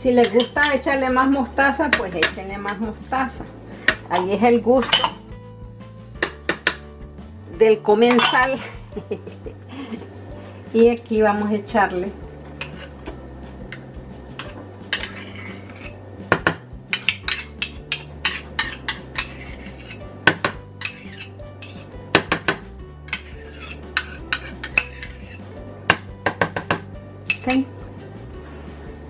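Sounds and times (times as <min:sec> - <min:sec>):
spoon and bottles clinking: 0:00.1 - 0:01.0, 0:03.8 - 0:05.3, 0:08.0 - 0:08.8, 0:12.5 - 0:13.1, 0:13.7 - 0:27.8.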